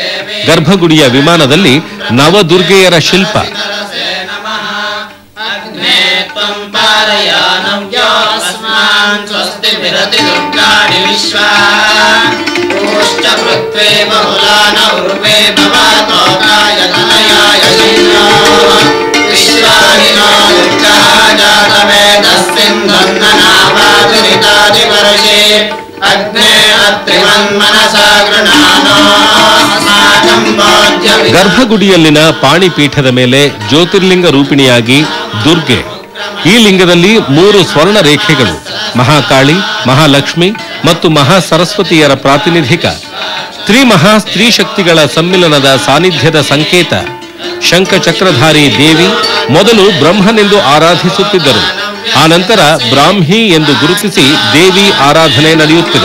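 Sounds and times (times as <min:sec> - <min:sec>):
devotional music with drumming: 0:05.8 - 0:56.0.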